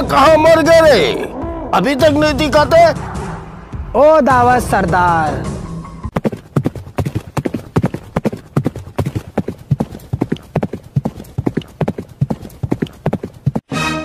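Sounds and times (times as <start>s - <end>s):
horse hoofbeats clip-clop: 6.1s - 13.6s.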